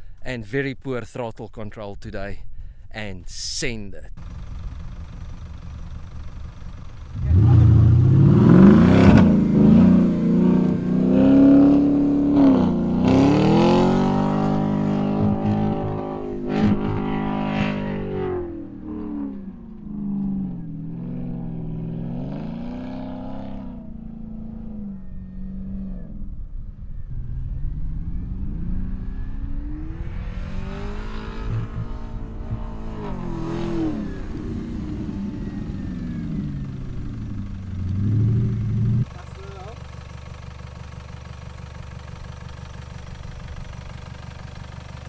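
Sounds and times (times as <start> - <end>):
car engine revving: 4.2 - 45.0.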